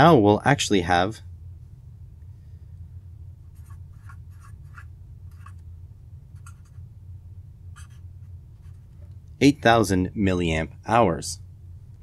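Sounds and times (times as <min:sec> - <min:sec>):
low steady hum: 0:00.0 - 0:12.0
marker pen scratching: 0:03.6 - 0:05.6, 0:06.4 - 0:06.8, 0:07.8 - 0:08.0.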